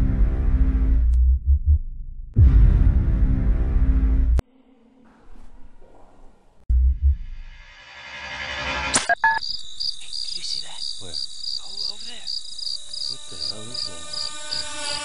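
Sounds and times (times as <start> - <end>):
crickets chirping: 9.1 - 15.0.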